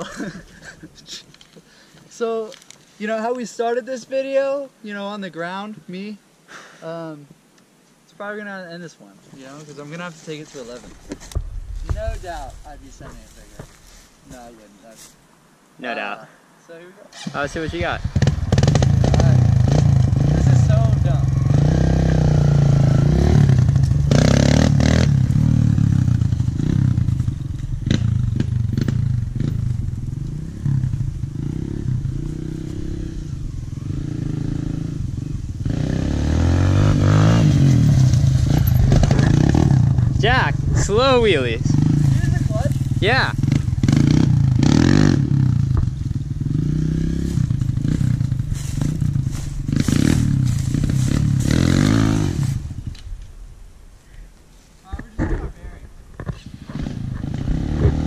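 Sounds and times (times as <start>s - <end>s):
dirt bike engine running: 17.6s - 52.8s, 56.6s - 58.0s.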